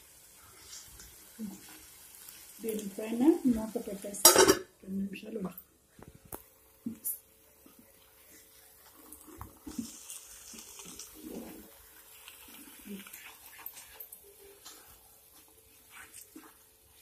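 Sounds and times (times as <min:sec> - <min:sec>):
frying hiss: 0:00.0 - 0:17.0
spatula scraping a pan: 0:09.6 - 0:15.0.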